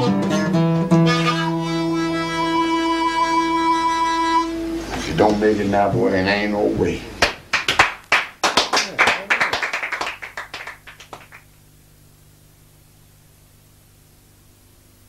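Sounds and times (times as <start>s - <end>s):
faint low hum and hiss: 0.0s - 15.0s
people clapping: 7.2s - 11.5s.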